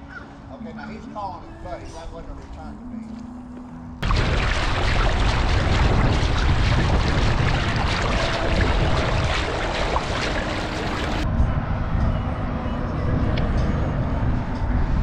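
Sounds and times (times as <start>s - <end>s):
water rushing along kayak hull: 4.0s - 11.2s
wind buffeting microphone: 4.0s - 15.0s.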